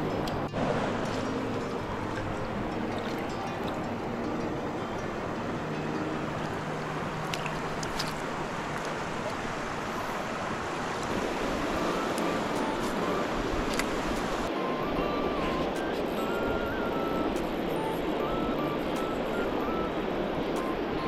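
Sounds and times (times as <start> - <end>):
flowing water rushing: 0.0 - 21.0.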